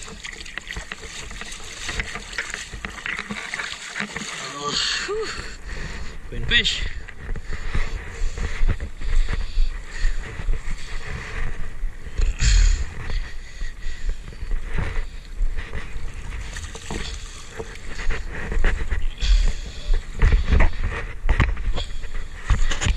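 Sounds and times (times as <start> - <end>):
hands splashing in water: 0.0 - 4.7.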